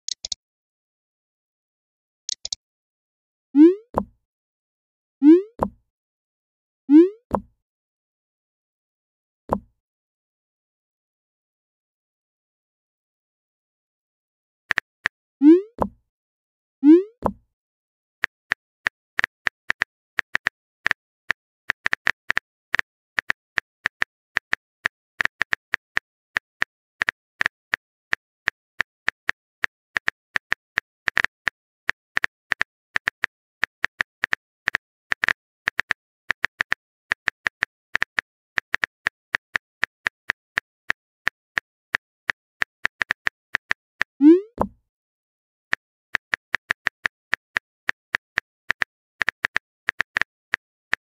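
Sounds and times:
phone keyboard typing clicks: 0.1 - 0.4, 2.3 - 2.6.

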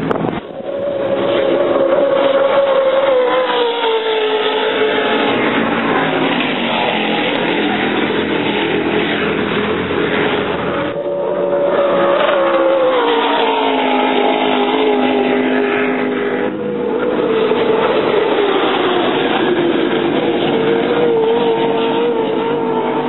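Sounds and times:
powerboat engines passing: 0.0 - 23.0.

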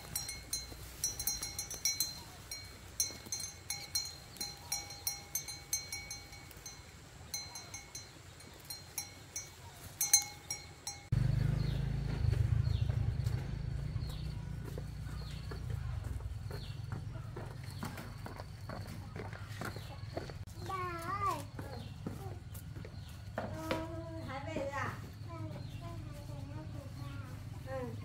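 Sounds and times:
small metal bell clinking: 0.0 - 11.2.

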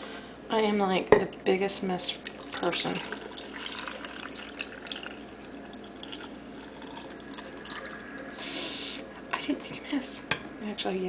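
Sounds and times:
liquid pouring into glass jar: 2.2 - 8.8
liquid hiss: 3.4 - 9.1.

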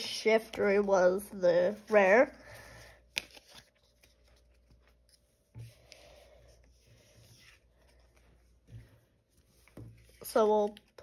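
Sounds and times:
cards rubbing and sliding: 3.1 - 6.0.

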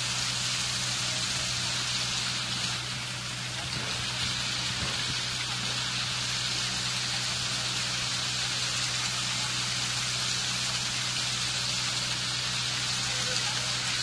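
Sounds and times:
fountain water splashing over stone: 0.0 - 14.0.

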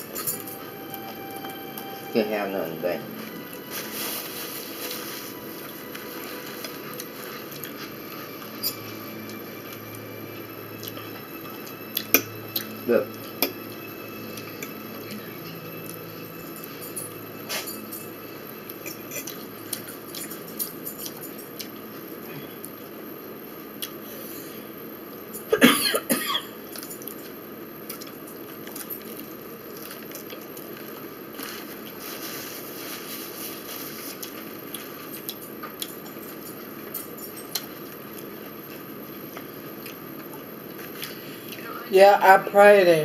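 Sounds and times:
person coughing: 25.5 - 26.6.

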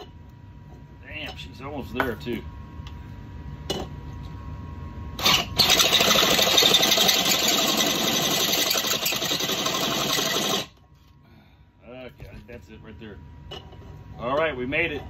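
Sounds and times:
cordless drill cutting metal: 5.2 - 10.7.

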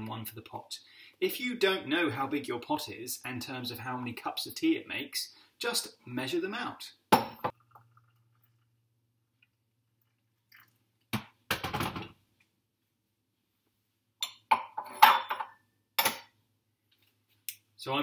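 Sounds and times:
metal teapot knocks and clinks: 14.2 - 16.3.

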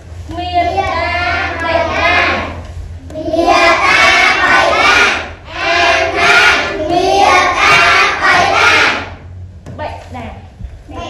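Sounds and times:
children chanting in unison: 0.7 - 9.3.

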